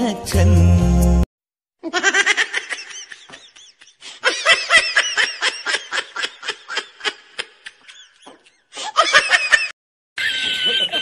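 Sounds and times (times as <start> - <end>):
high-pitched giggling laughter: 1.8 - 11.0.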